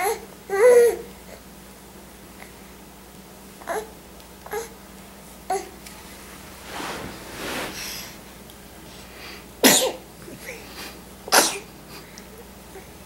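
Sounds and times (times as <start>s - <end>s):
sharp sneezes: 11.3s - 11.7s.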